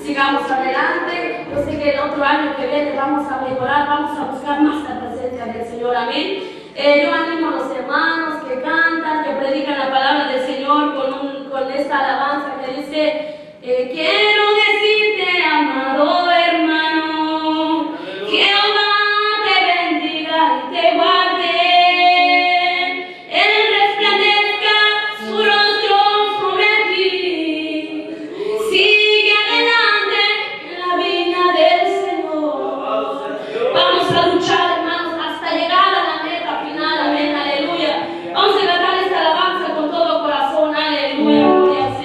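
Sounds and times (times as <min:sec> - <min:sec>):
women singing a worship song: 0:13.0 - 0:42.0.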